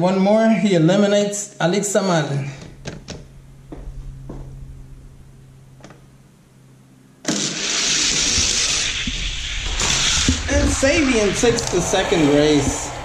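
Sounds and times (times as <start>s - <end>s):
toy cars rattling down plastic track: 7.3s - 10.5s.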